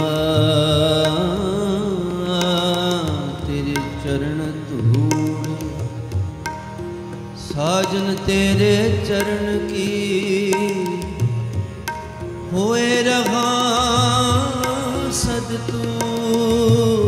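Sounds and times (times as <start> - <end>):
harmonium chords: 0.0 - 17.0
tabla beating: 0.0 - 17.0
person singing: 12.5 - 17.0.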